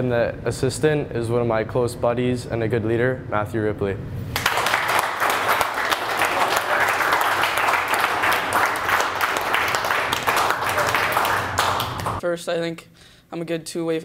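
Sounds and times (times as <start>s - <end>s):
group applauding: 4.3s - 12.2s.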